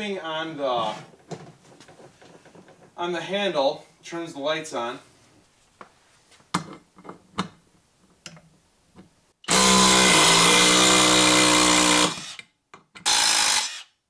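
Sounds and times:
cordless drill driving screw: 9.5 - 13.9.

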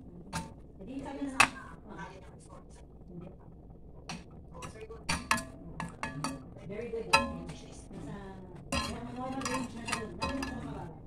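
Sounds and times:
utensil clinking and scraping pan: 7.1 - 7.8, 8.6 - 10.8.

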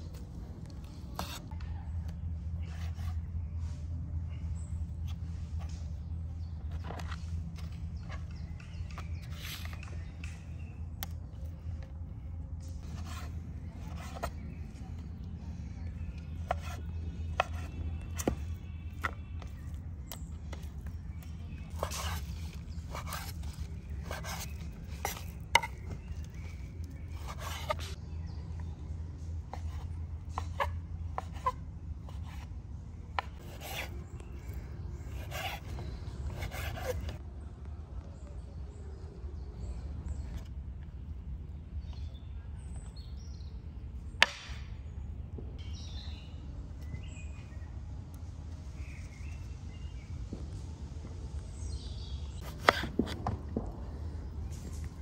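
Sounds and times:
food preparation knocks and scraping: 5.0 - 11.1, 12.8 - 28.0, 52.4 - 55.0.

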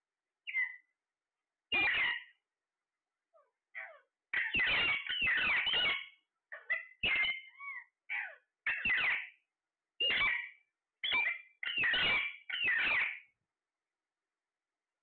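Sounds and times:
parakeets squawking: 1.7 - 2.3, 3.8 - 9.3, 10.0 - 13.2.

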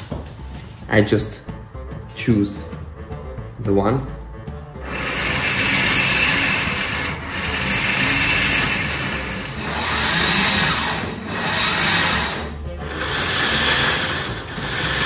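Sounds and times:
motors driving plastic gears: 4.9 - 15.0.

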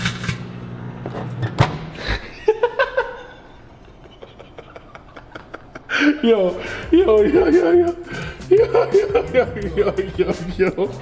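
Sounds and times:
microwave oven humming: 0.0 - 3.9
person laughing: 2.0 - 11.0.

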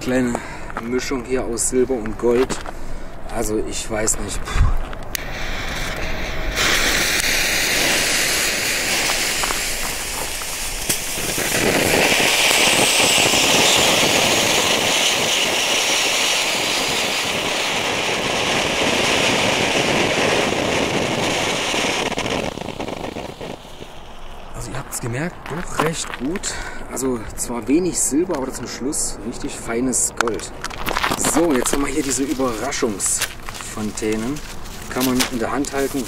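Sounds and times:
fountain fireworks hissing: 5.2 - 25.0, 31.1 - 36.0.

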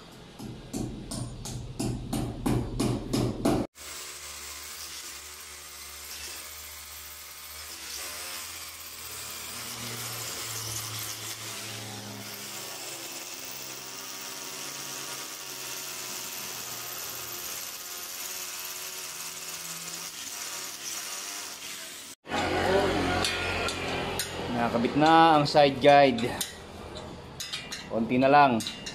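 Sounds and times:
electric drill boring into concrete: 3.8 - 24.4.

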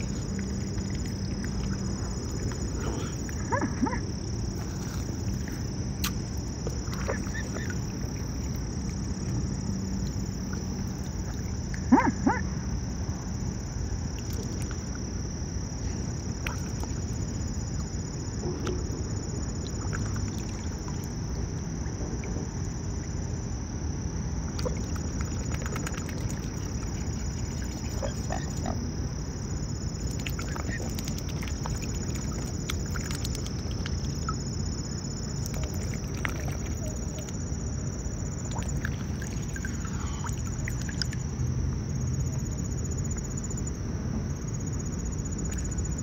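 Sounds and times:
water dripping: 0.0 - 4.0, 4.7 - 11.9, 29.9 - 34.7, 38.3 - 41.3
swan feeding at water surface: 0.0 - 12.4, 13.9 - 22.3, 24.5 - 41.4
background water noise: 0.0 - 46.0.

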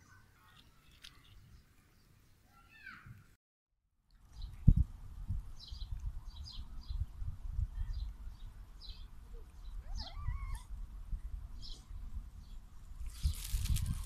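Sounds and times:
small birds chirping: 5.5 - 14.0.

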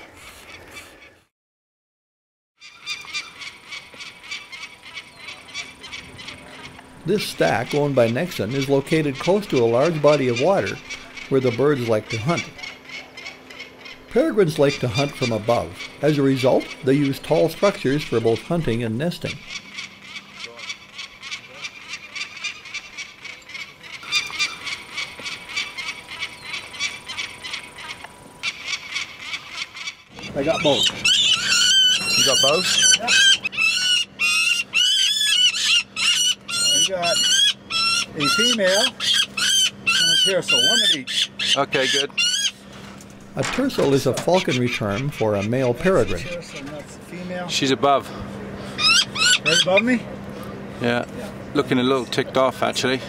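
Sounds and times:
falcon calling: 2.6 - 42.7, 43.3 - 46.8, 48.6 - 50.1.

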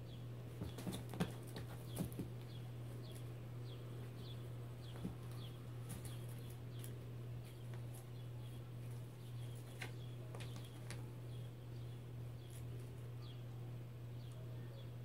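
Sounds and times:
steady low hum: 0.0 - 15.0
light taps and rustles: 0.6 - 3.3, 8.9 - 11.1.

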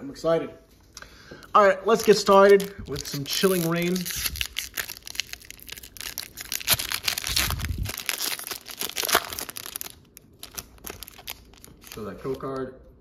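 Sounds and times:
foil wrapper being torn open: 1.9 - 12.6.

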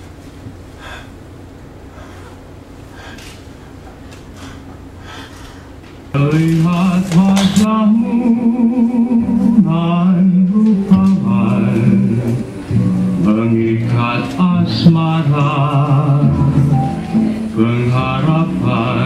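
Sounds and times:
low room sound: 0.0 - 19.0
person singing with wavering pitch: 6.2 - 19.0
steady lower accompaniment: 6.2 - 19.0.

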